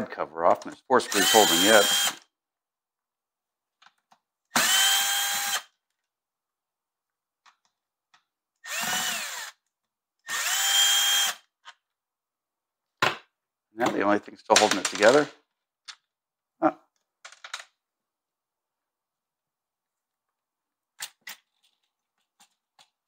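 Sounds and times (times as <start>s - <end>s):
cordless drill whine: 1.1s - 2.2s, 4.6s - 5.7s, 8.6s - 9.6s, 10.3s - 11.5s.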